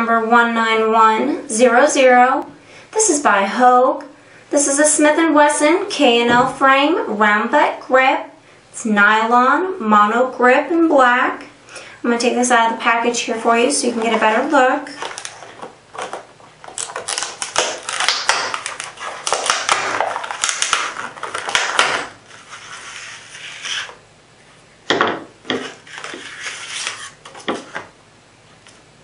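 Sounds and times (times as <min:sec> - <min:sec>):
plastic blister pack crinkling: 0:14.0 - 0:23.9.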